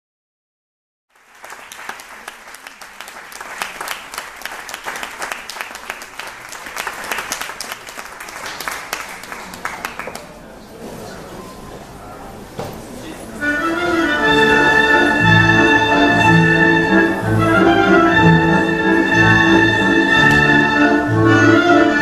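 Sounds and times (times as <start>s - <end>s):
audience applauding: 1.1s - 10.4s.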